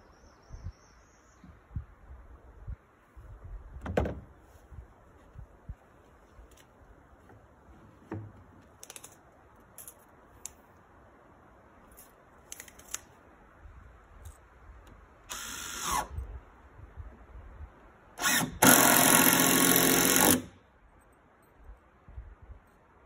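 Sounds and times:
cordless drill driving screws: 0:15.3 - 0:16.1, 0:18.2 - 0:20.5.

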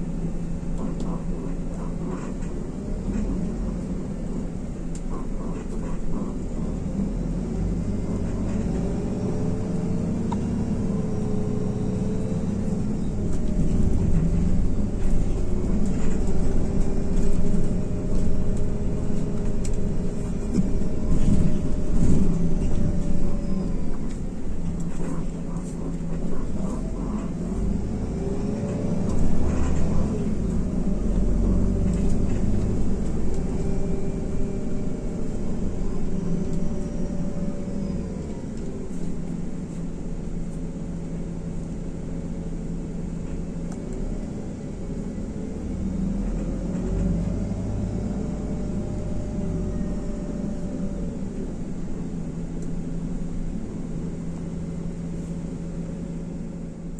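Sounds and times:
bus driveline whine: 0:00.0 - 0:56.9
bus engine low drone: 0:00.0 - 0:56.9.

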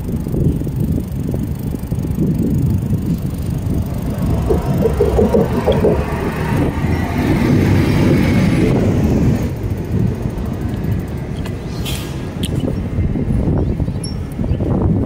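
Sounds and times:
bicycle road rumble: 0:00.0 - 0:15.0
wind on microphone: 0:00.2 - 0:10.3.

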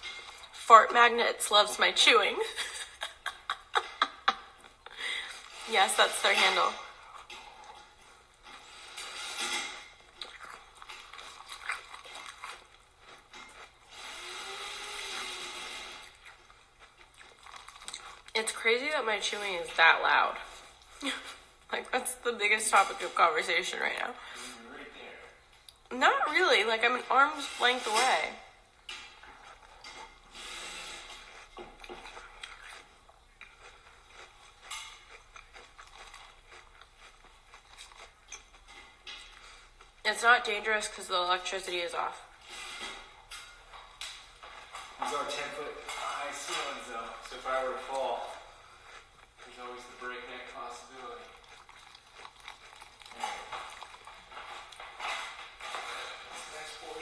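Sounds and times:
person chewing crunchy cereal: 0:03.2 - 0:19.7, 0:29.1 - 0:41.6, 0:42.2 - 0:57.0.

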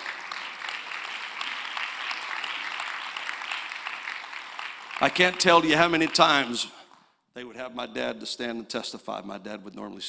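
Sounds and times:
crowd applauding: 0:00.0 - 0:06.7.

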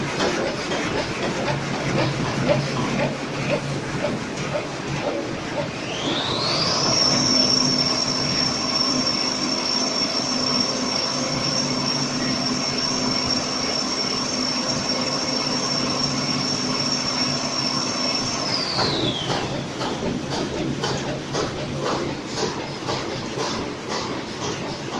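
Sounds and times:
high-pitched motor whine: 0:05.7 - 0:19.8.

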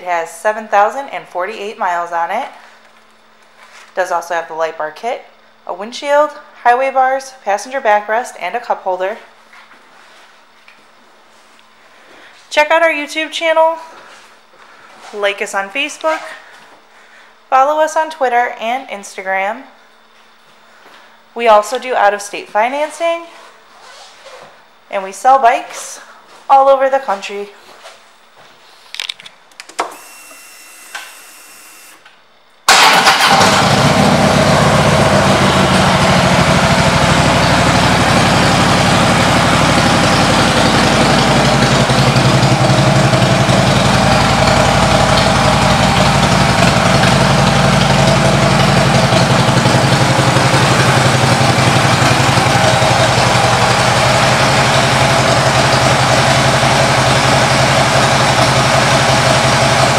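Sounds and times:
motorcycle engine starting and idling: 0:32.7 - 0:59.9.

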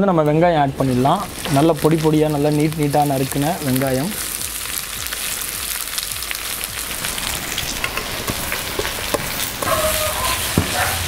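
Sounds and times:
onions sizzling in oil: 0:00.2 - 0:11.0
metal spoon scraping pan: 0:08.7 - 0:11.0.

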